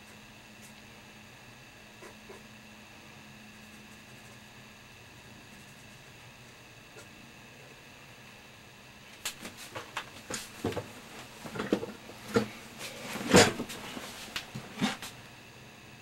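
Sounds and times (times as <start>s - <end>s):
faint hiss and hum: 0.0s - 16.0s
objects set down on desk: 9.7s - 12.5s.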